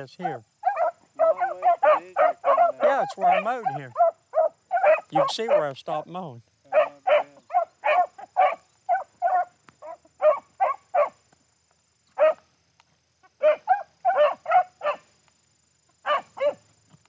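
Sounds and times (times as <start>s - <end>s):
dogs barking: 0.0s - 5.8s, 6.7s - 11.2s, 12.2s - 12.4s, 13.2s - 15.1s, 16.0s - 16.7s.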